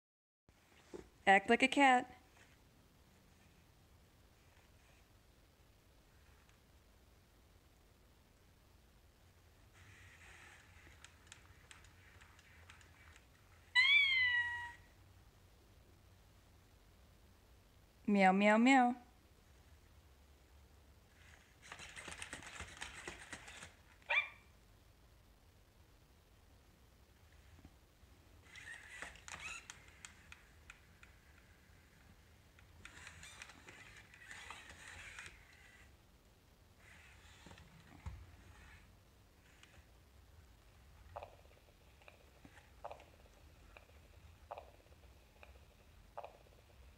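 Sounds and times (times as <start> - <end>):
synthetic cat meow: 13.7 - 14.9
robot dog high-pitched sound: 24.1 - 24.4.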